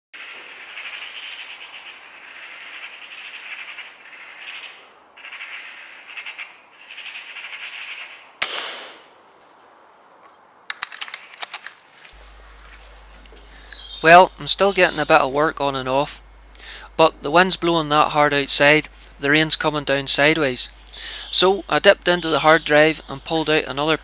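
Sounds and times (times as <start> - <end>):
magpie chattering: 0.2 - 8.3, 12.4 - 15.4, 20.3 - 24.0
loud gunshot: 8.4 - 9.1
sharp clicks: 10.7 - 11.8.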